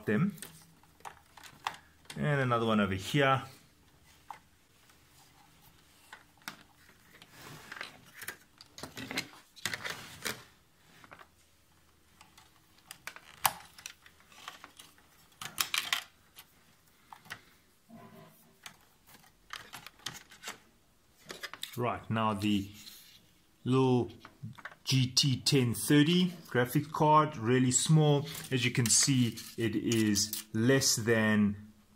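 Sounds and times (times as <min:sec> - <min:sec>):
cables rustling in metal case: 0:00.4 - 0:02.3, 0:03.9 - 0:17.6, 0:18.4 - 0:21.8.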